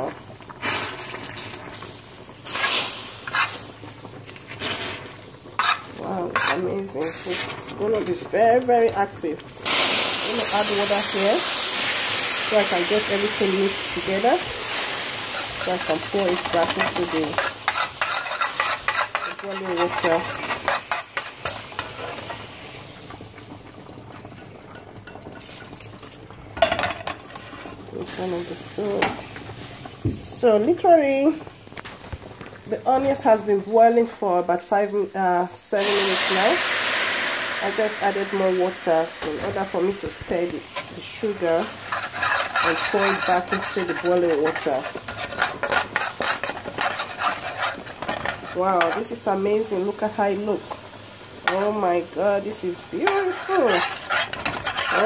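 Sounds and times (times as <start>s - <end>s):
water hissing in hot caramel: 0.0s - 26.6s, 27.2s - 34.8s, 35.7s - 55.0s
syrup sizzling: 0.0s - 55.0s
metal spoon scraping a pan: 2.5s - 3.7s, 5.6s - 8.2s, 14.0s - 22.4s, 39.2s - 49.3s, 51.4s - 51.9s, 52.5s - 55.0s.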